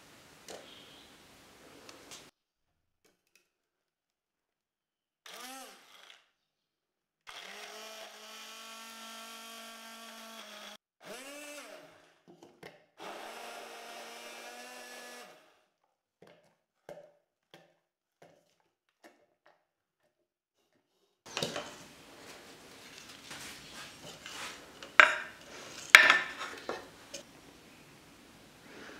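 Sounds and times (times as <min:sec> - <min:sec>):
immersion blender running: 0:07.3 - 0:12.1, 0:13.0 - 0:15.7.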